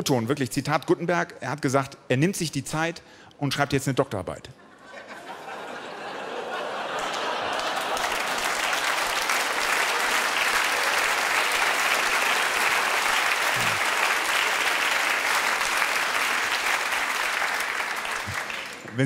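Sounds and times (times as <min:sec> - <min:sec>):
audience applauding: 0:06.0 - 0:19.0.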